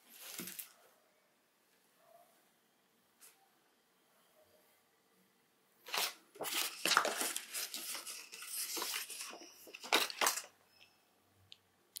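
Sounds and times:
paper packaging rustling: 0.1 - 0.7, 5.8 - 10.5
paper crackles: 5.9 - 10.5.

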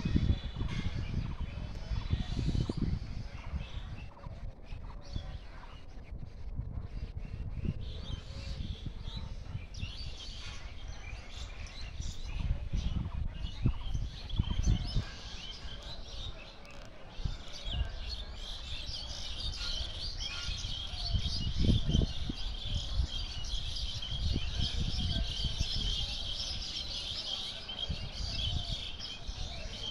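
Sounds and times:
small birds chirping: 7.1 - 29.9.

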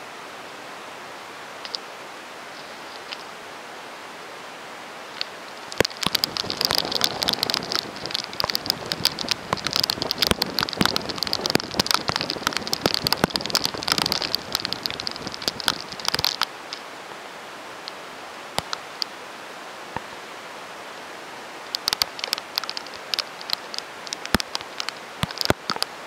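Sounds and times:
steady rain hiss: 0.0 - 26.0
rain tapping on car roof: 5.6 - 16.5, 18.6 - 18.8, 21.7 - 26.0.

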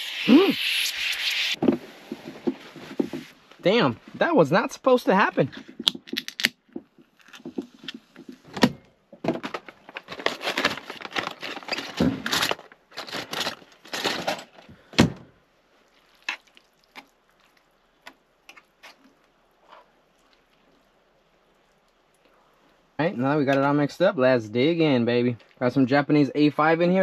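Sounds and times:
plastic packet crinkling: 9.4 - 14.3.

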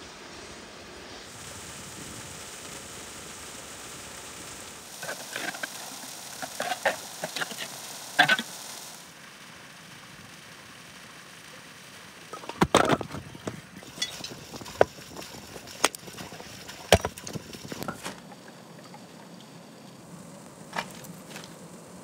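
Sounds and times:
firewood logs knocking: 16.9 - 18.2.

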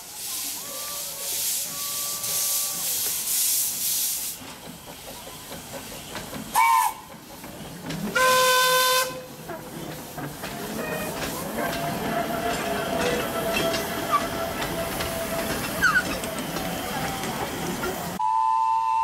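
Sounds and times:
steam hissing from cylinders: 0.0 - 19.0
steam whistle: 0.6 - 3.0, 6.5 - 7.1, 8.2 - 9.2, 18.2 - 19.0.

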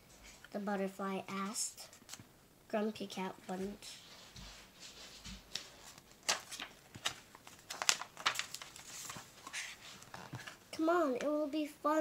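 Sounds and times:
paper pages turning: 4.4 - 10.6.

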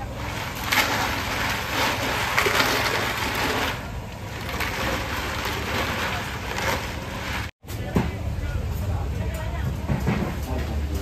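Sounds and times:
drink stirred in plastic barrel: 0.0 - 7.6
market background rumble: 0.0 - 11.0.

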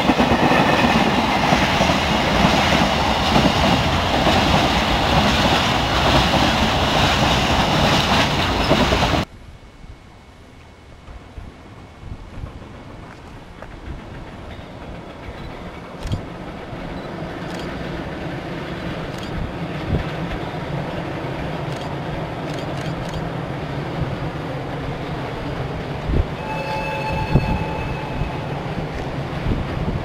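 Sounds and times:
electric freight train rumbling: 0.0 - 30.0
steady high tones: 26.4 - 29.2.

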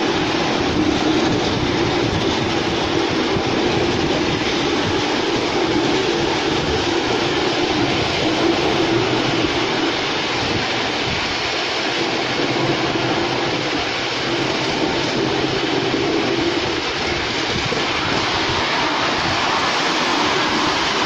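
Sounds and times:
miniature train wheels rolling on rails: 0.0 - 21.0.

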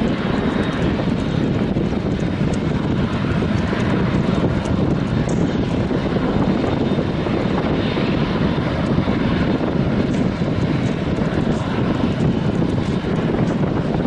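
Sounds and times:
jet engines running: 0.0 - 14.0.

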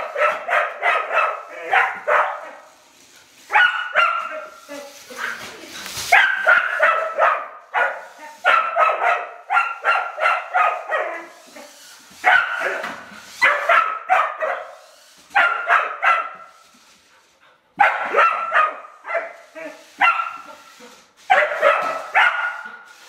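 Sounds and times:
dog barking: 0.0 - 2.8, 3.5 - 5.4, 6.1 - 11.4, 12.2 - 16.6, 17.8 - 22.9.

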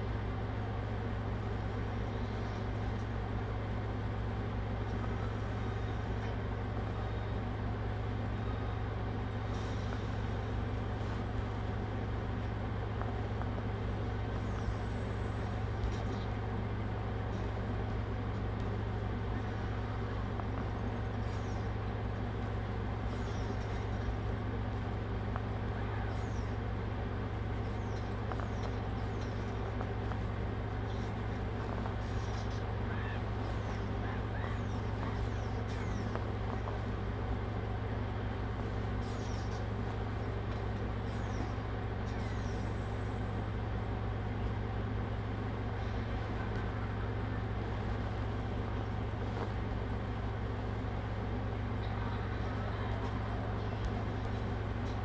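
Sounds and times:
steady low hum: 0.0 - 55.0
faint high chirps: 38.8 - 43.3.

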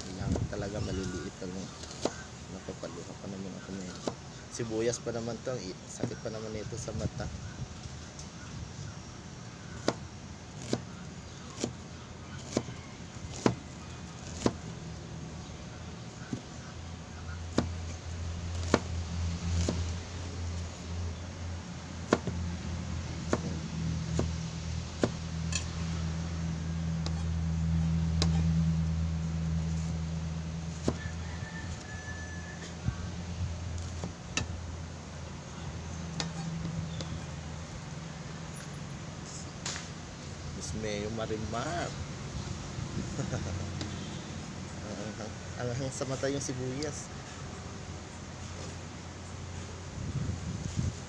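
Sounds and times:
steady low hum: 0.0 - 31.9
knife chopping on cutting board: 14.2 - 14.6, 18.6 - 18.9, 19.6 - 19.9, 22.1 - 22.4, 24.2 - 24.4.

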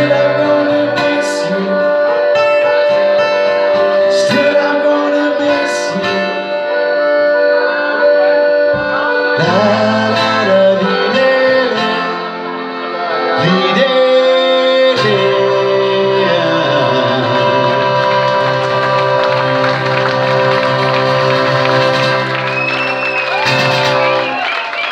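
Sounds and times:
man singing: 0.0 - 18.8
acoustic guitar: 0.0 - 24.6
accordion: 0.0 - 24.9.

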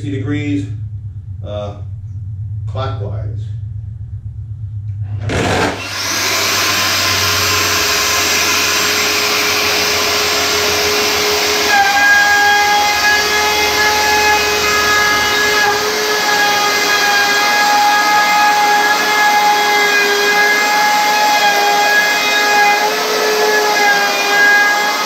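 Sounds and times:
router cutting plywood: 5.2 - 25.0.

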